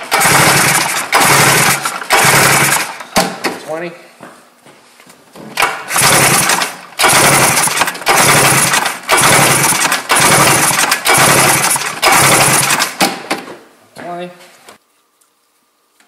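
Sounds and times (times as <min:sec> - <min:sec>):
engine cranking over: 0:00.0 - 0:03.2, 0:05.6 - 0:13.1.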